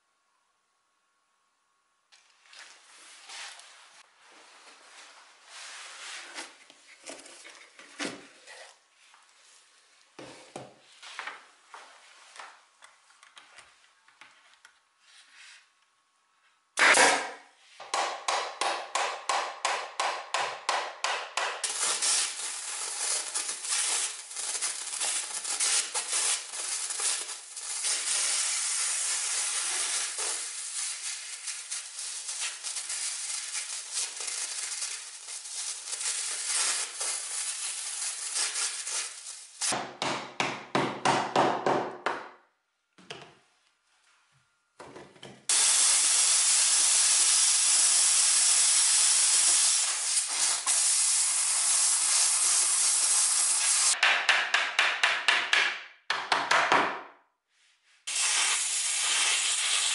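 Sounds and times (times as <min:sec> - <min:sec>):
steam cleaner hissing: 0:21.6 - 0:39.8, 0:45.5 - 0:54.0, 0:58.1 - 0:59.9.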